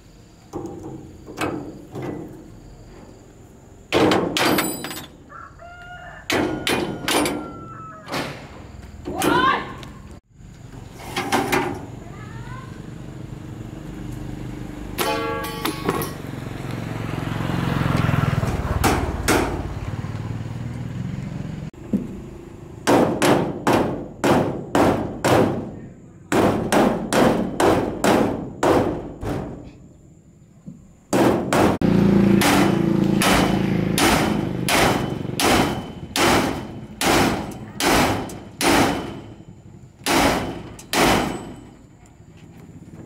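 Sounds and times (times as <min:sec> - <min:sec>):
hammer striking metal: 0:15.0 - 0:16.2, 0:32.4 - 0:41.7.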